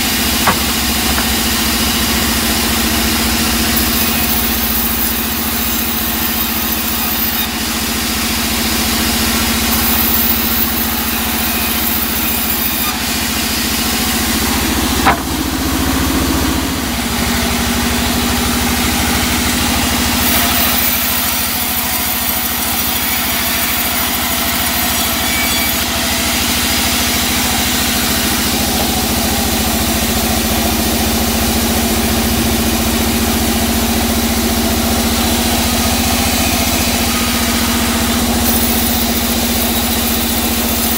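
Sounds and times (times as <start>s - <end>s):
band saw cutting wood: 0.0s - 40.9s
sharp knock: 0.4s - 1.6s, 15.0s - 15.8s.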